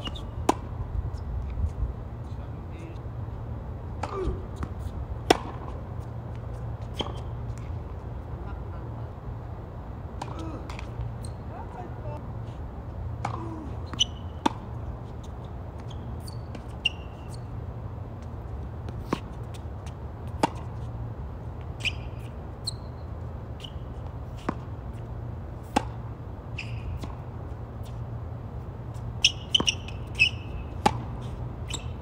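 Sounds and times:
tennis ball struck and bouncing: 4.0 - 7.7, 10.2 - 11.1, 13.2 - 14.8, 20.3 - 20.8, 25.6 - 27.3, 29.2 - 31.9.

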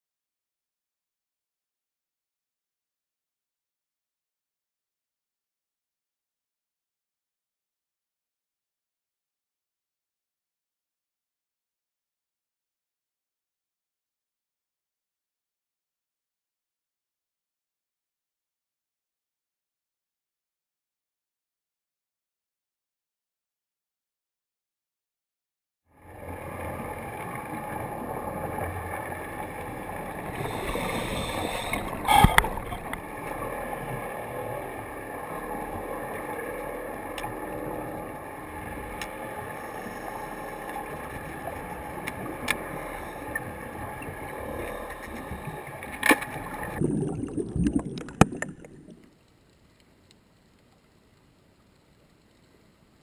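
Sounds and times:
faint steady hum: 26.0 - 46.8, 48.1 - 53.0
underwater rushing noise: 26.1 - 49.2.

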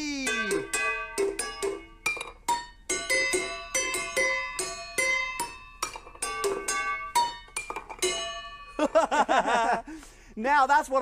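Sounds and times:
wooden spoons striking saucepans: 0.3 - 8.8.

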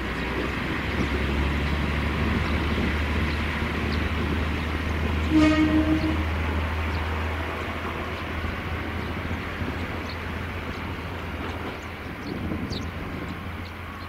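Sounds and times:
diesel railcar engine drone: 0.0 - 14.0
train horn blast: 5.2 - 6.8.

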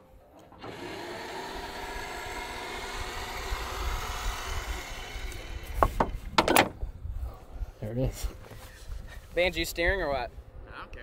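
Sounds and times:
electric winch motor running: 0.4 - 6.3.

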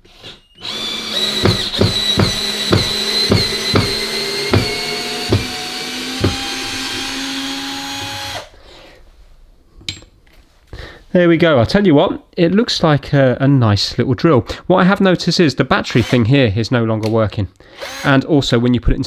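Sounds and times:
cordless drill motor whine: 0.0 - 8.5, 17.8 - 18.1
drill sharp clicks: 0.0 - 8.5, 15.9 - 16.2, 17.8 - 18.2.

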